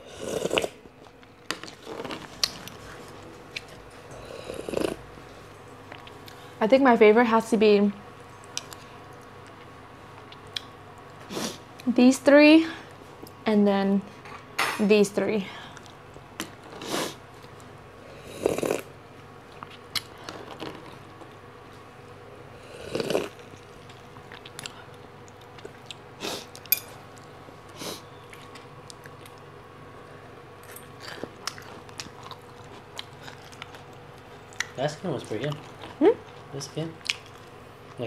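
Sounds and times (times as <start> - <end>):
chewing: 22.9 - 27.3, 28.2 - 38.0.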